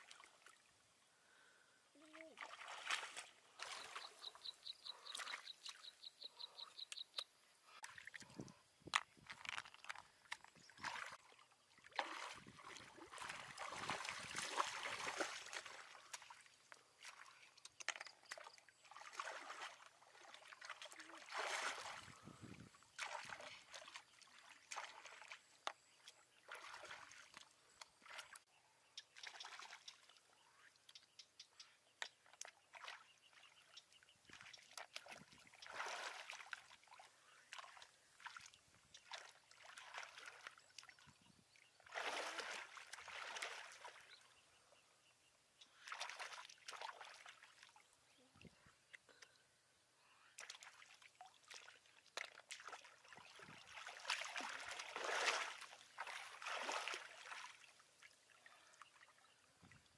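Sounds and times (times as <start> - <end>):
water sloshing and trickling: 0.0 - 1.4, 2.0 - 44.4, 45.6 - 49.4, 50.4 - 59.9.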